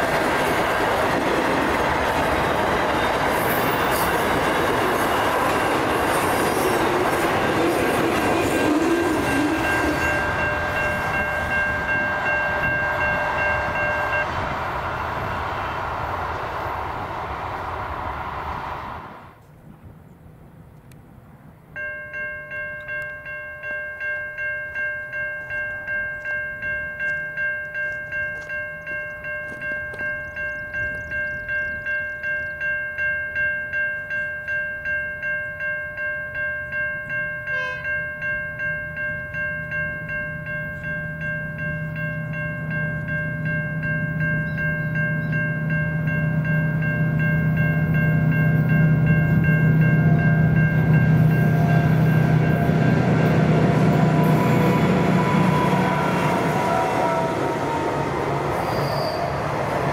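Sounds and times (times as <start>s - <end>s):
low train rumble: 0.0s - 59.9s
level crossing bell ringing: 8.4s - 14.3s, 21.8s - 55.7s.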